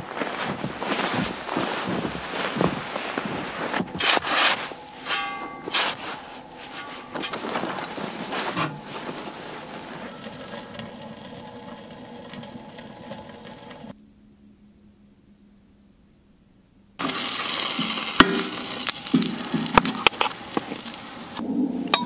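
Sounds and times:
boots crunching through snow: 0:00.0 - 0:12.4
quiet hiss: 0:00.0 - 0:21.4
rustles and knocks: 0:00.4 - 0:13.9.

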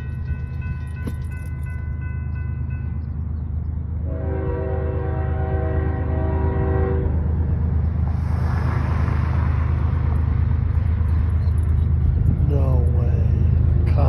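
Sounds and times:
train air horn: 0:04.0 - 0:07.2
car passing with tyre noise: 0:07.3 - 0:12.6.

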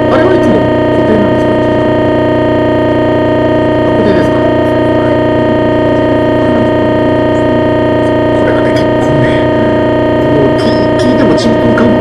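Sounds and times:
loud buzzing noise: 0:00.0 - 0:12.0
faint talk: 0:03.9 - 0:12.0.

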